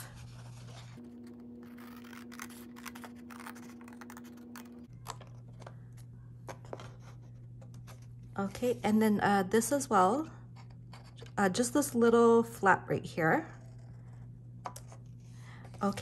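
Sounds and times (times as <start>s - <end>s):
scissors snipping cardstock: 1.2s - 4.8s.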